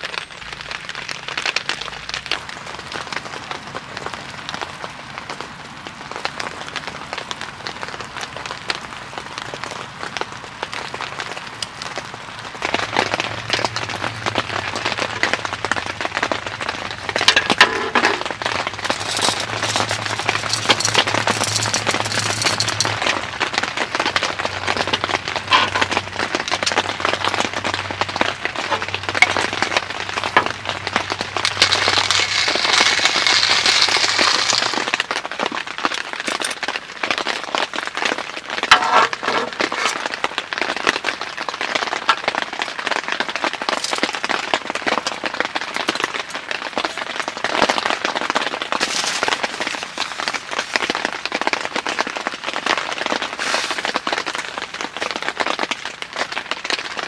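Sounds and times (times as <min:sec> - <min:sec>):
rain pattering: 0:00.0 - 0:57.0.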